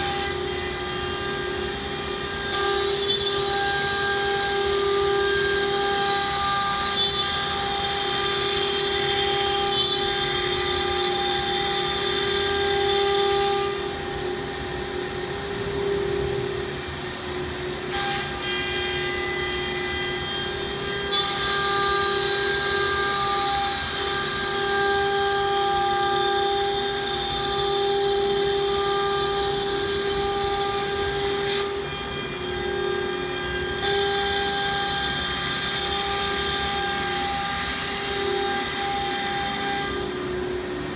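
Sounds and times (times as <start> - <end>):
router spindle whining: 0.0 - 40.9.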